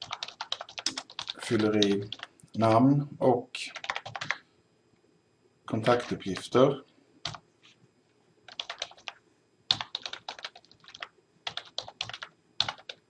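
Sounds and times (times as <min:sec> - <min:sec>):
typing on computer keyboard: 0:00.0 - 0:02.3, 0:03.7 - 0:04.4, 0:07.2 - 0:07.4, 0:08.5 - 0:13.0.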